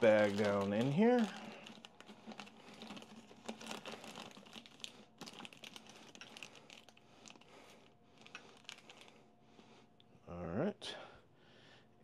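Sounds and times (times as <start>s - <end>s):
plastic bag crinkling: 0.0s - 9.2s.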